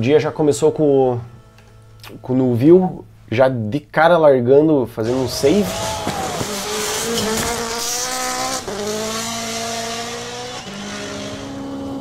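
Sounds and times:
tyres sliding on gravel: 0:05.0 - 0:09.0
rally car engine at full throttle: 0:05.0 - 0:12.0.

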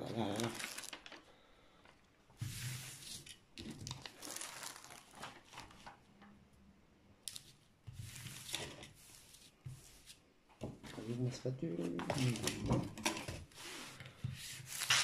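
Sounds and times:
plastic film rustling and crinkling: 0:00.0 - 0:01.3, 0:02.5 - 0:06.1, 0:11.1 - 0:15.0.

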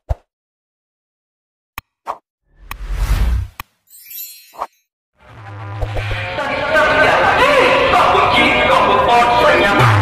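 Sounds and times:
loud dj music over loudspeakers: 0:06.4 - 0:10.0.

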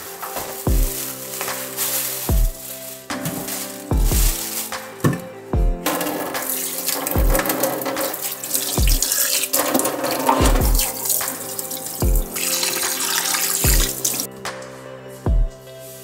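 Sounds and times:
music with deep bass beat: 0:00.0 - 0:15.8
tap water splashing in a sink: 0:05.9 - 0:14.3.

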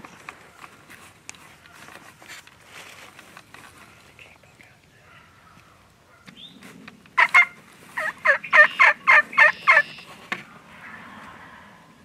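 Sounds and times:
wild turkey calling: 0:07.2 - 0:11.4.

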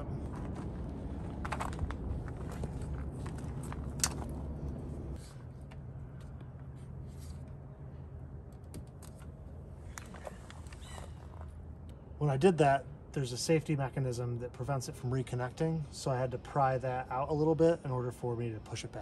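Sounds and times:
low rumble: 0:00.0 - 0:05.3.

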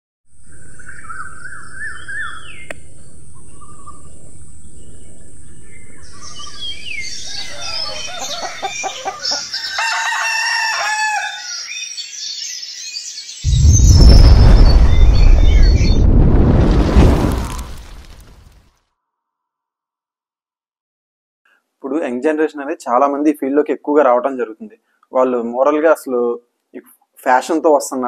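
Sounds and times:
birds chirping: 0:00.4 - 0:16.8
roosters crowing: 0:06.3 - 0:11.8
chickens clucking: 0:07.3 - 0:09.7.

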